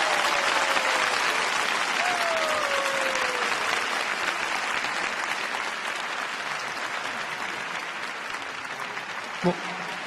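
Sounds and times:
crowd whooping: 0:00.0 - 0:01.2, 0:02.0 - 0:03.6
audience applauding: 0:00.0 - 0:10.0.

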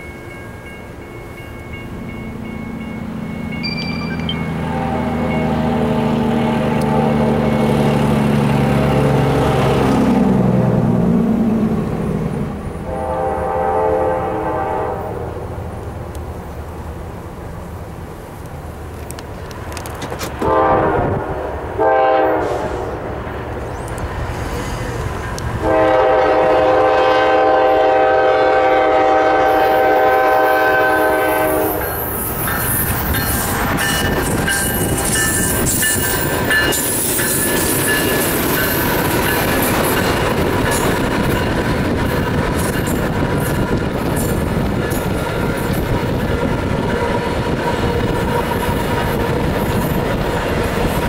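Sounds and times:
diesel locomotives rumbling past: 0:00.0 - 0:51.0
locomotive air horn blasts: 0:03.7 - 0:05.4, 0:12.8 - 0:15.3, 0:20.4 - 0:23.0, 0:25.6 - 0:32.0.

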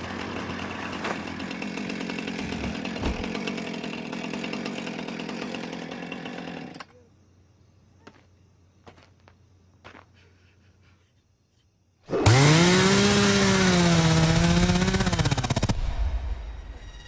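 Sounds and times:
chainsaw revving: 0:00.0 - 0:06.9, 0:12.1 - 0:15.8.

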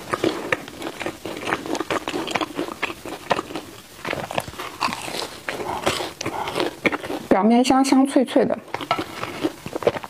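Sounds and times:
chewing crunchy bun: 0:00.0 - 0:07.5, 0:08.6 - 0:10.0.

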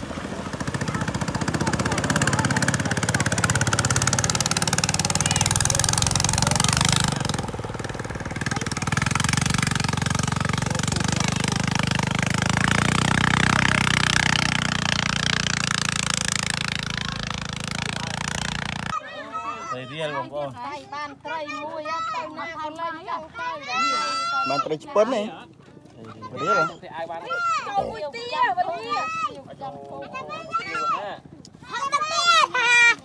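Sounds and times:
engine running steadily: 0:00.0 - 0:19.0.

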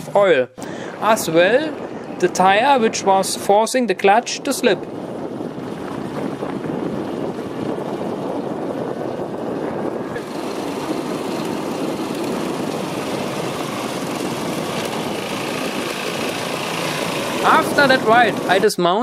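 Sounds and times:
lawnmower engine running: 0:05.0 - 0:18.8.

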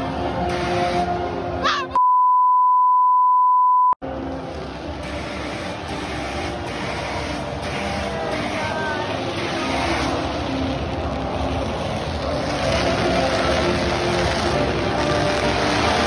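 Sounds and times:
stadium crowd noise: 0:00.0 - 0:01.9, 0:04.0 - 0:16.0
censor bleep: 0:02.0 - 0:04.0.

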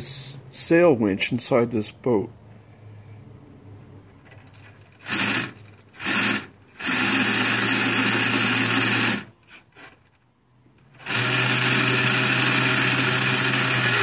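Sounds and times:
servo whirring: 0:04.6 - 0:10.2, 0:10.8 - 0:14.0.

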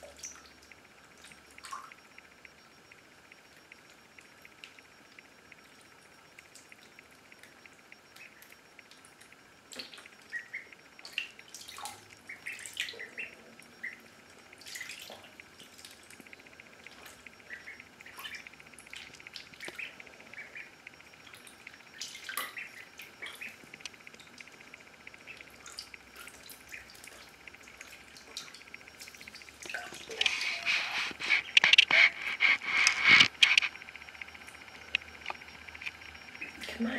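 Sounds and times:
ducklings peeping: 0:08.1 - 0:08.6, 0:09.7 - 0:14.1, 0:16.8 - 0:23.8, 0:25.1 - 0:26.0, 0:26.6 - 0:28.5, 0:29.2 - 0:33.7
ducklings splashing in water: 0:09.7 - 0:14.0, 0:14.6 - 0:16.1, 0:16.9 - 0:23.6, 0:25.3 - 0:31.6.

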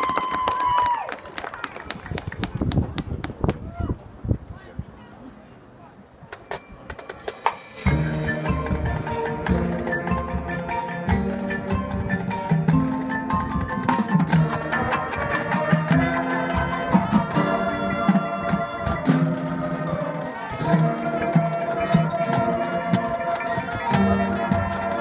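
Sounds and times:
marching band playing: 0:06.4 - 0:25.0.

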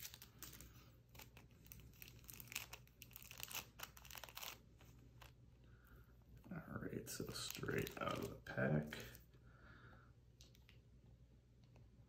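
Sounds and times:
plastic wrapper crinkling: 0:00.0 - 0:05.4, 0:07.1 - 0:09.2.

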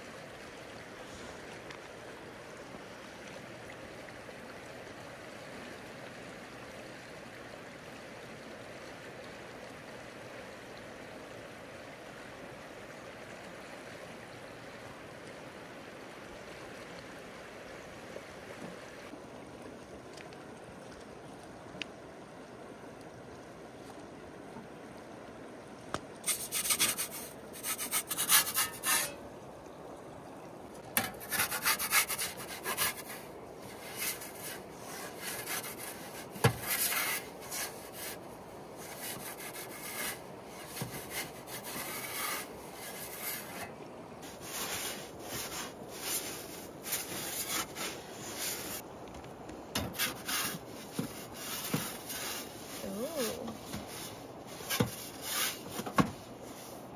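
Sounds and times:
background hiss: 0:26.1 - 0:56.9
scraping and rubbing strokes: 0:26.2 - 0:29.2, 0:31.0 - 0:38.2, 0:38.8 - 0:48.8, 0:49.8 - 0:56.8.

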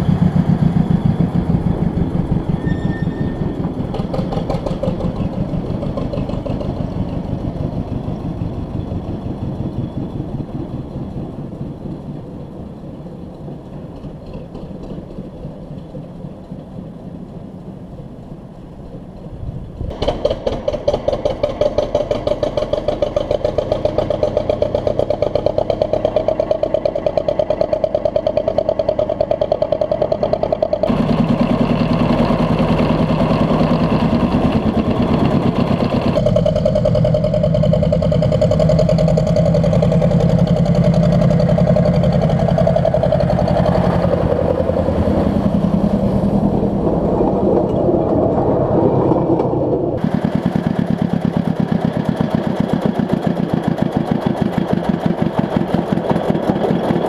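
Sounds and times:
miniature locomotive running: 0:50.0 - 0:57.0.

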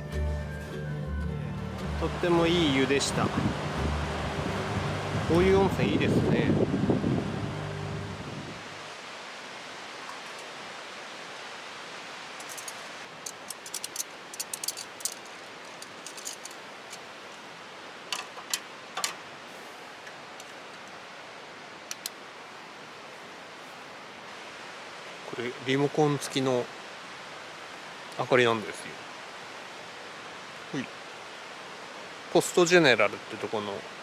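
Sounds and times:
steady hiss: 0:01.7 - 0:34.0
light clicks and rustles: 0:12.4 - 0:17.5, 0:20.0 - 0:21.0.

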